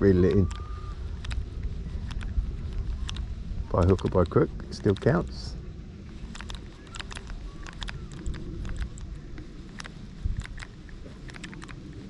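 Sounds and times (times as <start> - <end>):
wind rumble on microphone: 0.0 - 12.0
fishing reel clicking: 6.3 - 11.8.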